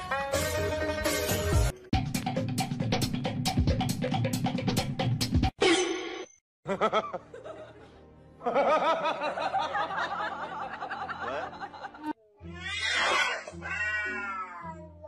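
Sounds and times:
crowd laughing: 0:06.6 - 0:12.2.

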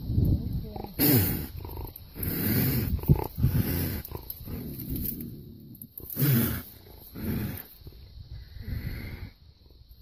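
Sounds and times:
cougar snarling and growling: 0:00.7 - 0:09.3.

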